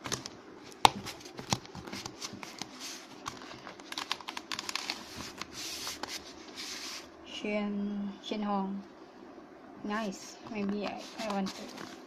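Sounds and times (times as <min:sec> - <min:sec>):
plastic wrapping crinkling: 0:01.0 - 0:06.5.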